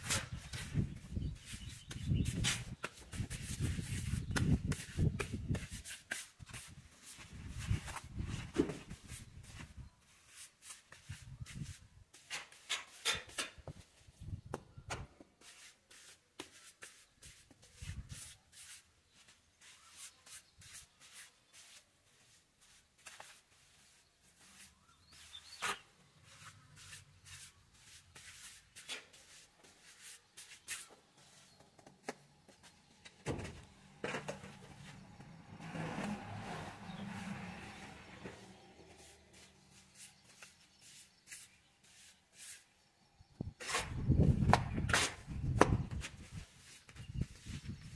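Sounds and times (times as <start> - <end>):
trowel scraping wet plaster: 19.6 - 31.6, 43.6 - 45.3.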